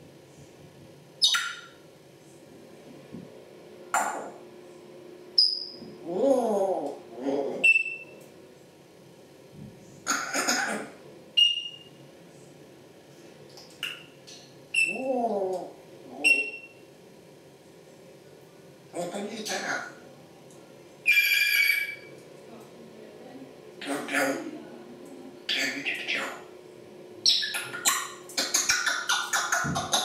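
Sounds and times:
parrots squawking: 1.2s - 1.8s, 10.1s - 10.7s, 14.8s - 15.4s, 16.2s - 16.6s, 19.3s - 20.0s, 21.1s - 22.1s, 23.8s - 24.5s, 25.5s - 26.5s, 27.3s - 30.0s.

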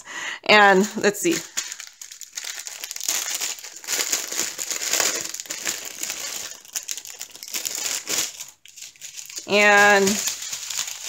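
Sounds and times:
plastic packaging crinkling: 0.8s - 11.0s.

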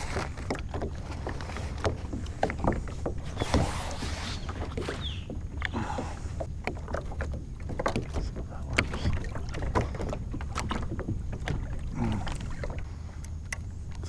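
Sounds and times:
kayak hull knocks and rattles: 0.0s - 14.0s
steady low rumble: 5.2s - 14.0s.

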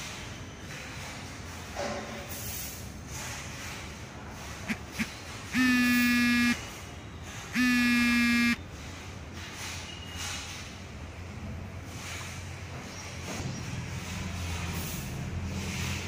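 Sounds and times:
buzzing electric horn blasts: 4.7s - 6.7s, 7.5s - 8.6s.

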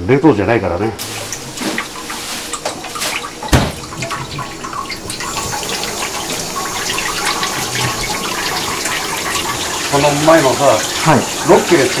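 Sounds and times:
tap water running into sink: 1.0s - 12.0s.

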